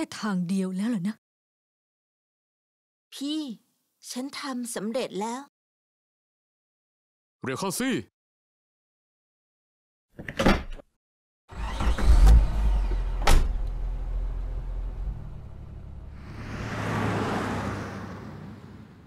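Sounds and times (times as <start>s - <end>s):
car engine starting: 11.5s - 19.0s
street traffic rushing: 11.6s - 19.0s
car door slamming: 11.8s - 14.0s.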